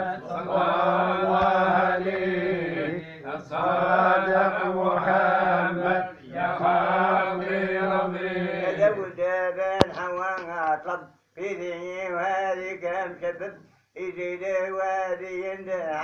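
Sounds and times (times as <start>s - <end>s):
man chanting: 0.0s - 16.0s.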